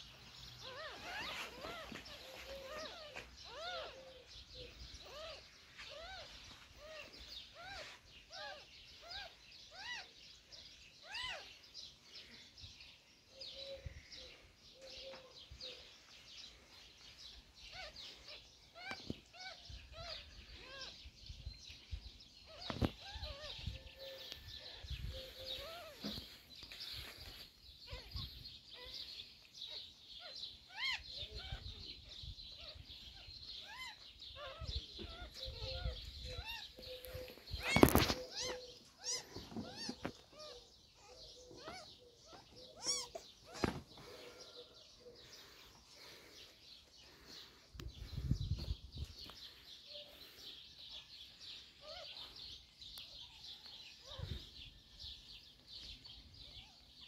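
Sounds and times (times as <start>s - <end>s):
rustling of fur and blanket: 0.6s - 4.0s
kittens mewing: 33.6s - 44.7s.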